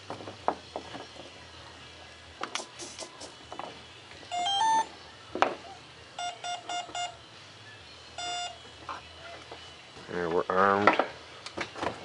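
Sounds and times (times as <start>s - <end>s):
short electronic beeps: 4.3s - 4.9s, 6.2s - 7.2s, 8.2s - 8.6s.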